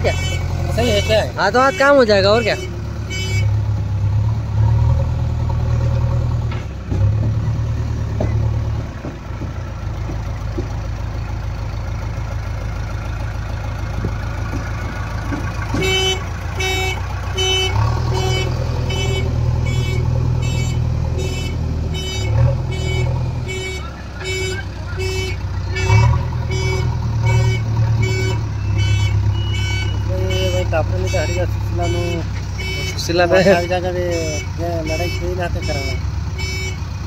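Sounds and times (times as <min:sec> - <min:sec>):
diesel engine running: 0:00.0 - 0:37.0
reversing alarm beeps: 0:21.4 - 0:36.8.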